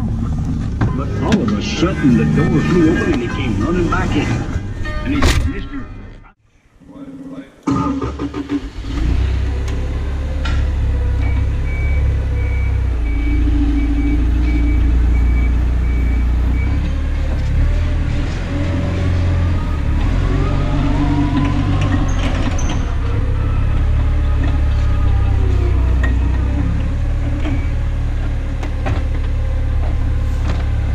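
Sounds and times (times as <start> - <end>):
diesel truck engine idling: 0.0 - 4.8, 9.3 - 30.9
backup alarm beeping: 0.8 - 4.2, 11.2 - 16.9.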